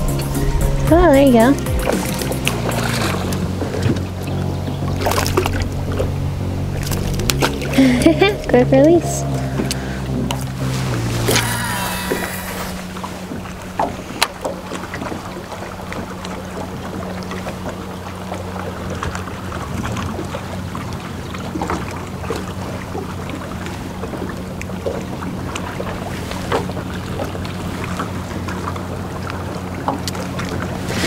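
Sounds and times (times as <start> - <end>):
boat motor humming: 0.0 - 31.0
water noise: 0.0 - 31.0
wind: 0.0 - 31.0.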